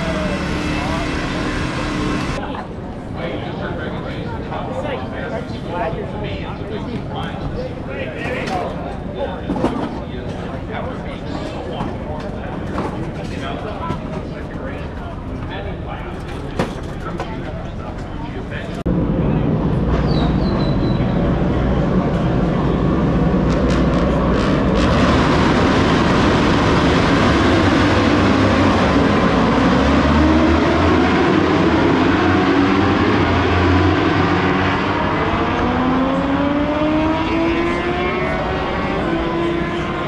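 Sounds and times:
racing motorcycle engines revving: 0.0 - 2.4, 18.8 - 40.0.

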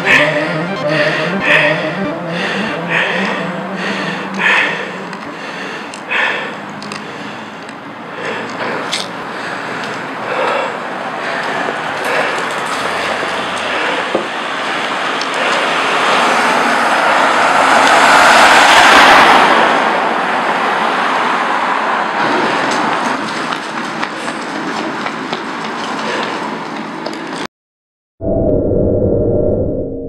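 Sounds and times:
road traffic noise: 0.0 - 27.5
passing vehicle hiss: 3.8 - 23.2.

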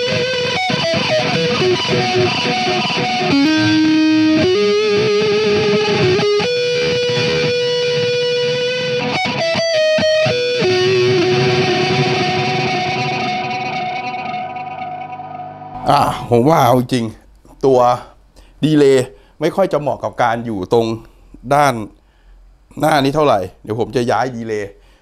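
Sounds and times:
distorted electric guitar lead: 0.0 - 16.0.

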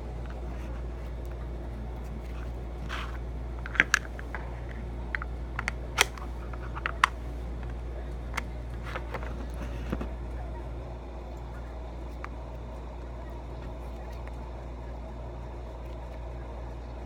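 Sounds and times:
steady low hum: 0.0 - 17.0
plastic containers clicking and tapping: 2.2 - 10.2.

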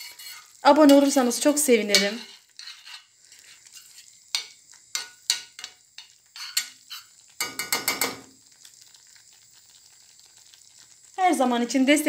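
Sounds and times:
metal spoon scraping a pan: 0.0 - 8.2
sauce simmering: 0.0 - 12.0.

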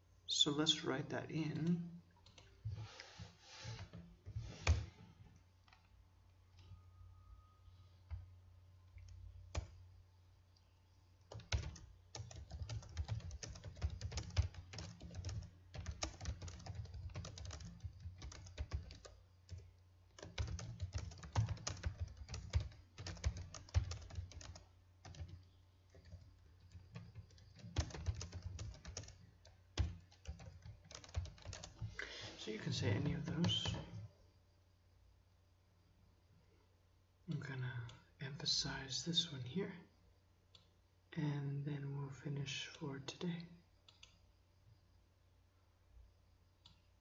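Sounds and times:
typing on a keyboard: 9.0 - 9.8, 11.3 - 32.0, 33.0 - 34.1.

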